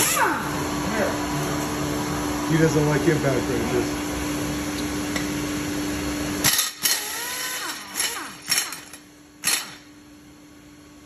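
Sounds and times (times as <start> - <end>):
pneumatic impact wrench bursts: 0.0 - 0.4, 6.4 - 9.9
steady mechanical hum: 0.0 - 11.0.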